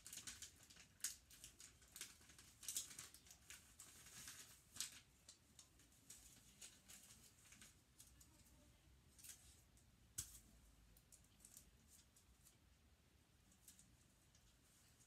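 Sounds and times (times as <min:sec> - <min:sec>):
wrapping paper crinkling: 0:00.0 - 0:08.4.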